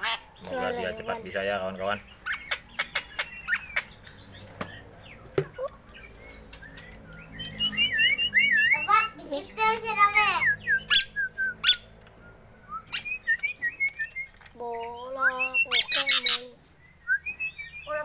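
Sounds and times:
myna squawks and chatter: 0:00.0 - 0:01.4, 0:02.0 - 0:12.2, 0:14.4 - 0:16.8.

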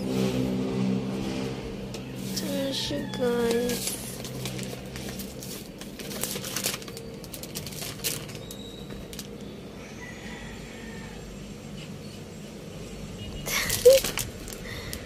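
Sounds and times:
cellophane and paper crinkling: 0:02.1 - 0:09.4, 0:13.5 - 0:15.0.

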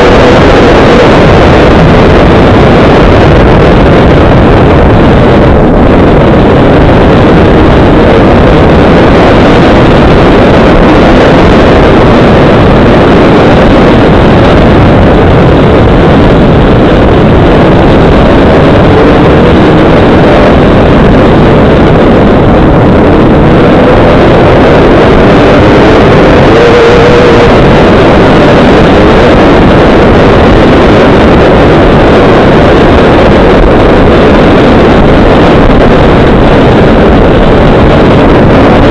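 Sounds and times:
wind rushing over microphone: 0:00.0 - 0:38.9
dirt bike engine running: 0:22.5 - 0:30.4.

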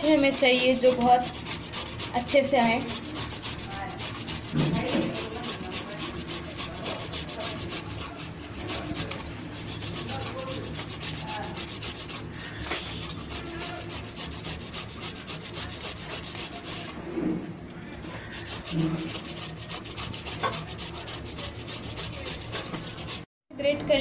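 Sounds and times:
gourd scraping on a grater: 0:00.0 - 0:17.2, 0:18.2 - 0:23.3.

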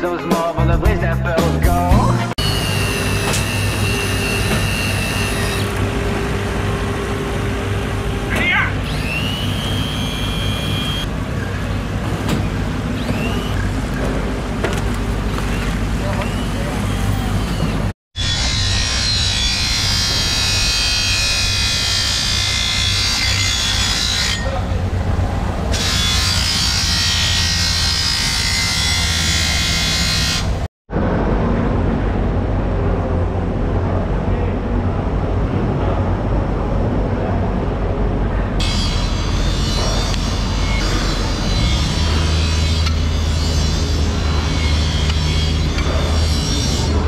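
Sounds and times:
grinder wheel grinding steel: 0:16.2 - 0:25.0, 0:25.7 - 0:30.6, 0:38.6 - 0:47.0
low hum: 0:30.9 - 0:47.0.

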